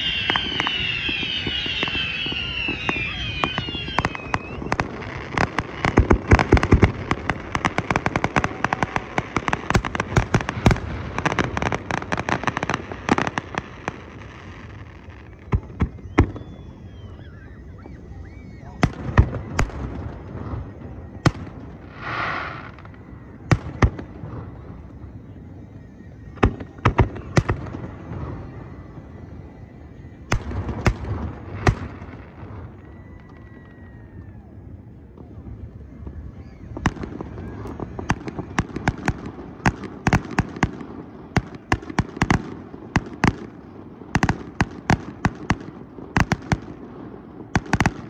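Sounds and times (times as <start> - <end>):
firework hissing: 0.0 - 17.7, 21.8 - 24.1
fireworks crackling and popping: 0.0 - 48.0.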